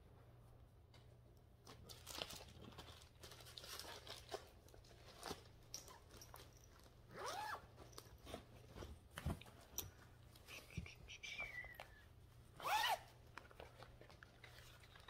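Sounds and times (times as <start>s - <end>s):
paper and plastic rustling: 1.7s - 7.0s, 13.2s - 15.0s.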